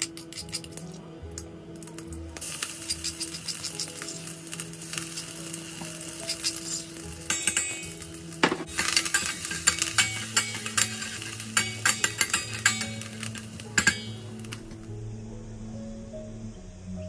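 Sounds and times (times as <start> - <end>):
spices sizzling and crackling in oil: 0.0 - 14.9
metal spoon scraping a pot: 8.7 - 14.7.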